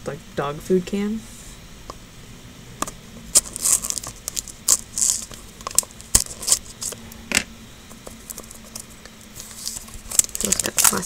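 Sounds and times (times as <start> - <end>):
plastic wrap crinkling: 3.3 - 7.0, 8.1 - 11.0.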